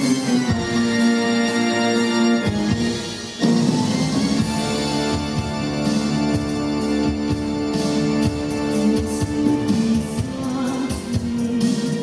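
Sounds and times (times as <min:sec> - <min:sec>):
organ-like keyboard chords: 0:00.0 - 0:09.7
man singing: 0:08.6 - 0:12.0.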